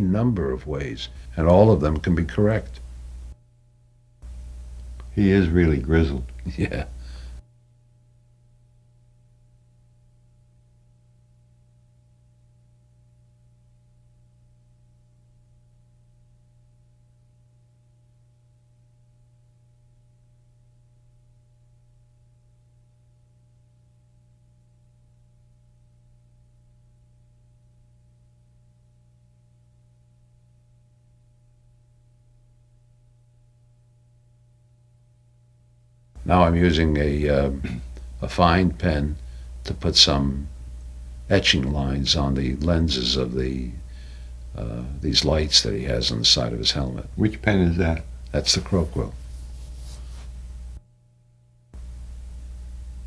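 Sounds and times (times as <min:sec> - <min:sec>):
faint low hum: 0:00.0 - 0:53.0
faint high steady tones: 0:36.2 - 0:50.8, 0:51.7 - 0:53.0.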